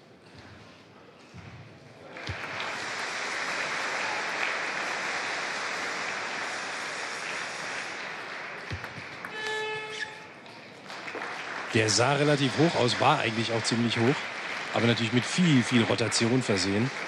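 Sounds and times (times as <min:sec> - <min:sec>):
crowd applauding: 0:02.0 - 0:17.0
brief high squeak: 0:09.3 - 0:10.3.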